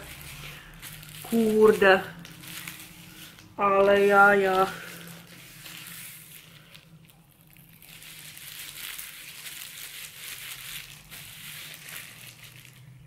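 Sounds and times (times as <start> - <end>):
rubbing wet hair: 0.0 - 6.9
plastic gloves crinkling: 0.0 - 13.0.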